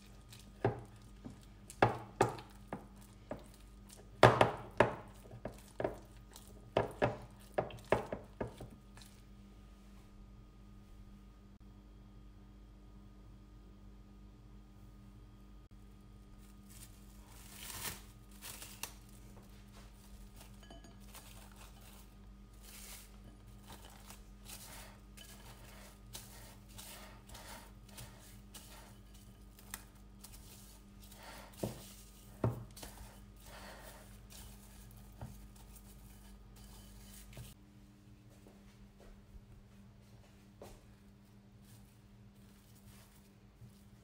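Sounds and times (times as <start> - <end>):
dough squishing and tearing: 0.0 - 9.4, 16.0 - 37.6
low steady hum: 0.0 - 44.0.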